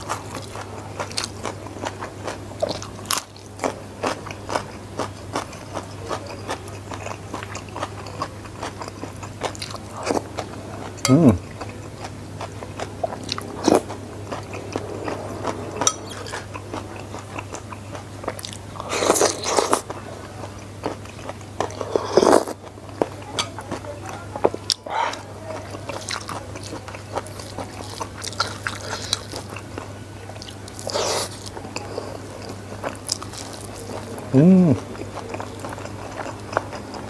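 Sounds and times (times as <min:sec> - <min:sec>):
chewing and crunching food: 0:00.0 - 0:37.0.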